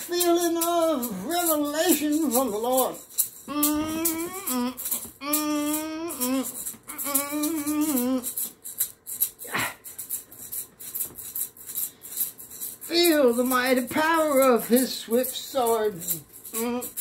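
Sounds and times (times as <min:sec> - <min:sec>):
maraca shaking: 0:00.0 - 0:17.0
man humming: 0:03.5 - 0:08.5, 0:09.4 - 0:09.8, 0:16.4 - 0:17.0.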